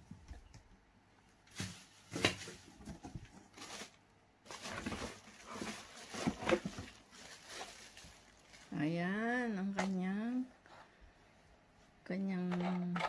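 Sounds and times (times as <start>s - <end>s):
plastic bags crinkling: 1.4s - 10.0s
cardboard rustling: 1.5s - 8.7s.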